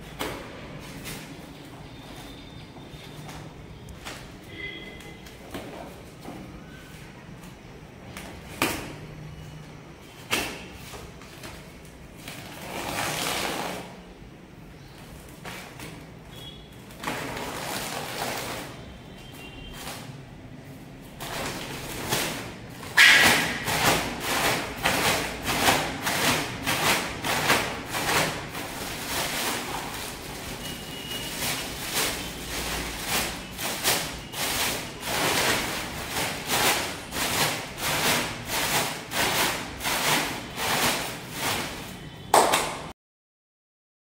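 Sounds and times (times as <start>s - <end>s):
powder rustling and scraping: 16.9s - 42.0s.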